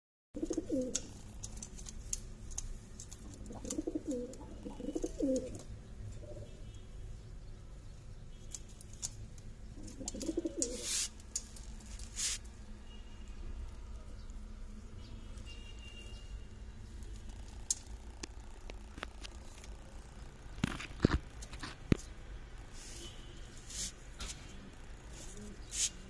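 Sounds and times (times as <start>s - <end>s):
pigeon cooing: 0.4s - 1.2s, 3.3s - 6.5s, 9.8s - 10.9s.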